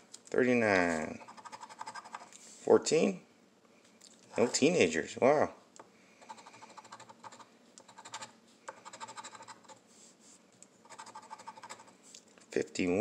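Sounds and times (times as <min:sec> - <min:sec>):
coin scratching lottery ticket: 0:00.9 - 0:02.3, 0:06.2 - 0:09.8, 0:10.8 - 0:12.0.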